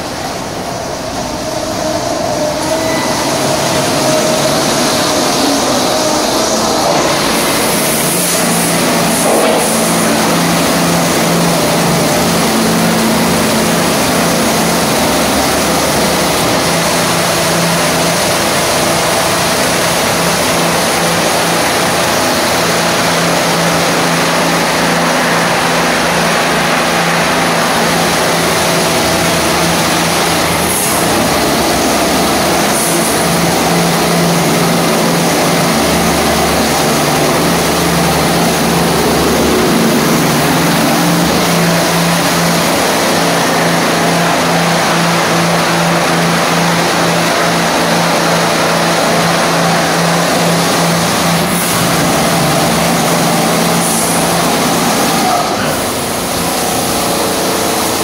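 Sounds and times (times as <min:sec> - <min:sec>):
car wash machinery hum: 0:00.0 - 0:58.0
high-pressure water spraying: 0:00.0 - 0:58.0.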